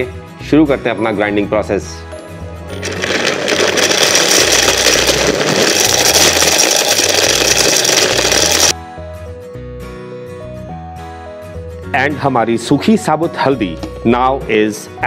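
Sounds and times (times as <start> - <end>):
mixer grinder motor grinding: 2.8 - 8.8.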